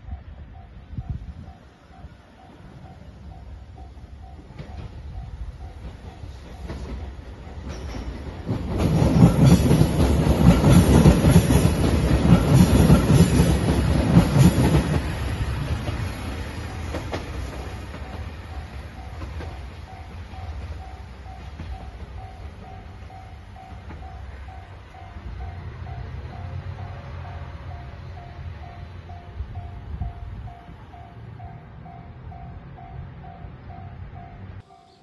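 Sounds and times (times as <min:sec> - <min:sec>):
diesel train passing: 0:00.0 - 0:35.0
train wheels clickety-clack: 0:01.6 - 0:26.8.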